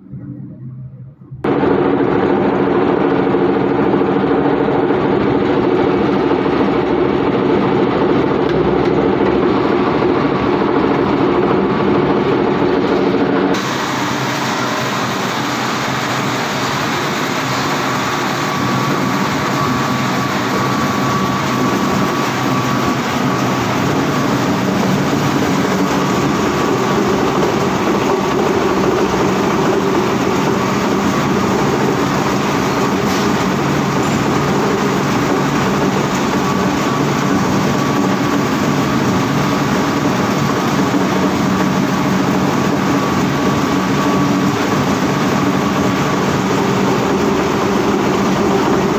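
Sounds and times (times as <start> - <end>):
plastic shredding machine rumbling: 0.0 - 48.9.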